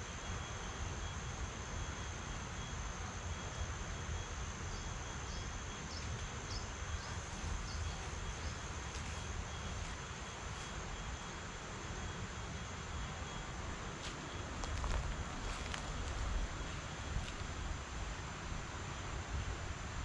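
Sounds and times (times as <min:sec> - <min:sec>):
insect chorus: 0:00.0 - 0:20.0.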